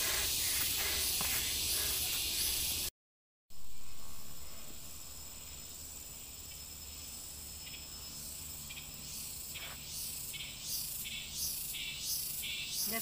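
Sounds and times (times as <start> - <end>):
footsteps crunching on dry trail: 0.0 - 2.8
insects droning: 0.0 - 2.9, 3.5 - 13.0.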